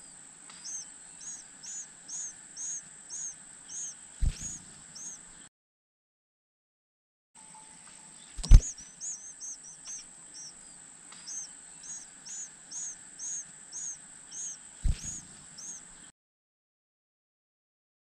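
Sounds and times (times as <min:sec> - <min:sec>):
nestlings begging peeps: 0:00.0 - 0:05.4, 0:08.3 - 0:16.1
sharp thumps: 0:04.2 - 0:04.6, 0:08.4 - 0:08.8, 0:14.8 - 0:15.2.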